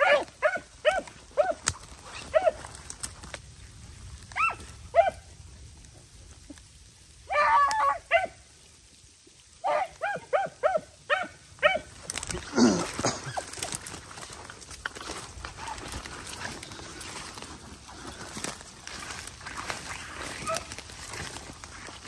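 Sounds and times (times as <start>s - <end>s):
dogs yelping: 0.0s - 2.8s, 4.3s - 5.3s, 9.7s - 12.0s, 19.6s - 21.4s
dry brush crackling and rustling: 0.0s - 22.0s.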